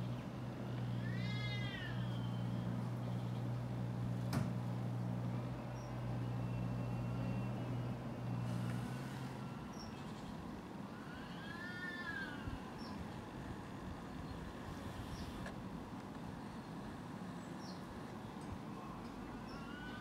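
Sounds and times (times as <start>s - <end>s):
low steady hum: 0.0s - 11.2s
cats yowling: 0.7s - 3.3s, 10.9s - 12.6s, 18.8s - 20.0s.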